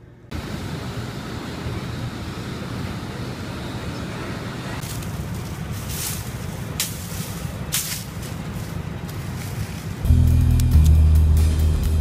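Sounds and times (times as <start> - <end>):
traffic rumble: 0.0 - 12.0
hissing rustles: 4.8 - 10.0.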